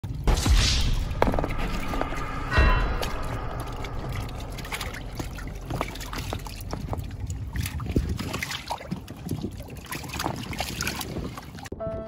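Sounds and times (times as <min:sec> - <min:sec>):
water lapping against boat hull: 0:04.7 - 0:11.7.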